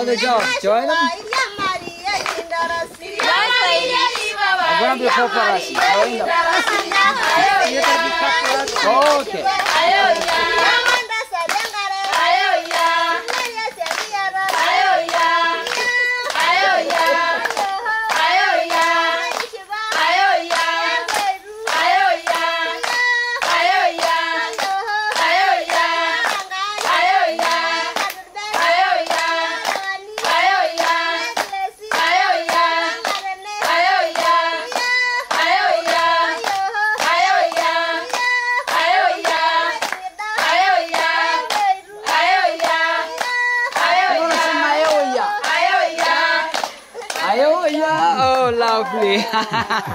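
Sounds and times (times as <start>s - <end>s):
hand-clapping: 0.0s - 49.9s
women singing in unison: 0.0s - 49.9s.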